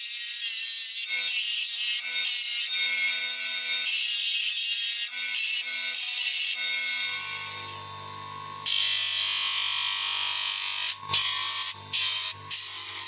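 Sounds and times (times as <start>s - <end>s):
steady motor hum: 7.4s - 13.0s.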